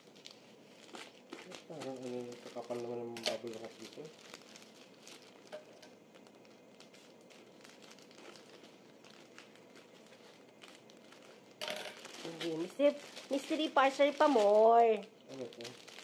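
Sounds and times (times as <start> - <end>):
plastic mailer crinkling: 0.0 - 16.0.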